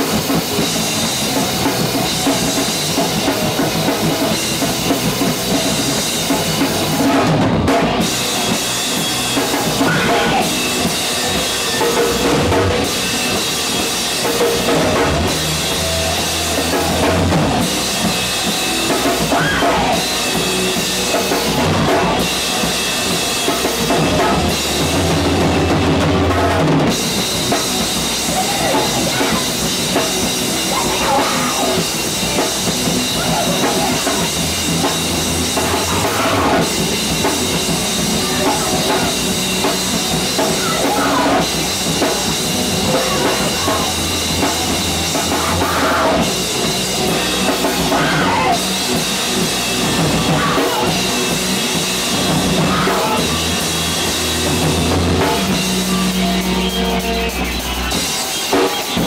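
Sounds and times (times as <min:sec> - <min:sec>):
drum kit: 0:00.0 - 0:59.0
electric guitars: 0:00.0 - 0:59.0
person singing: 0:28.2 - 0:29.8, 0:30.6 - 0:34.8, 0:35.6 - 0:46.4, 0:52.5 - 0:54.0.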